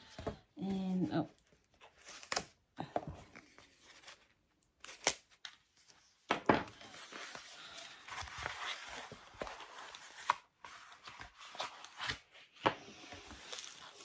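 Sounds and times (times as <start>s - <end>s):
paper wrapping slit and torn: 4.8s - 5.6s.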